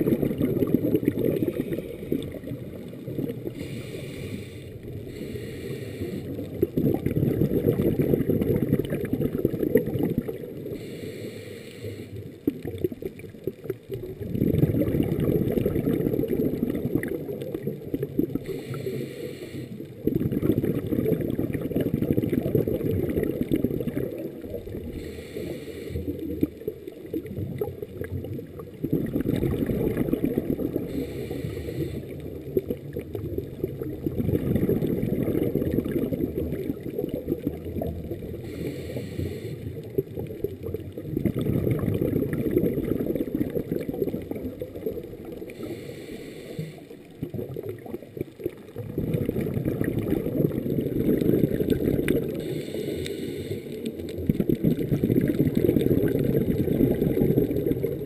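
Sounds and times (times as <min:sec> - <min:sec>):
exhaust bubbles rushing: 0:00.0 - 0:03.5, 0:06.6 - 0:10.6, 0:12.6 - 0:18.4, 0:20.0 - 0:24.9, 0:27.2 - 0:30.9, 0:32.6 - 0:38.4, 0:40.6 - 0:45.3, 0:47.2 - 0:52.4, 0:54.2 - 0:58.0
regulator inhale hiss: 0:01.4 - 0:02.3, 0:03.4 - 0:06.6, 0:10.6 - 0:12.4, 0:18.4 - 0:20.0, 0:24.8 - 0:26.4, 0:30.8 - 0:32.4, 0:38.3 - 0:40.0, 0:45.5 - 0:47.2, 0:52.3 - 0:54.0.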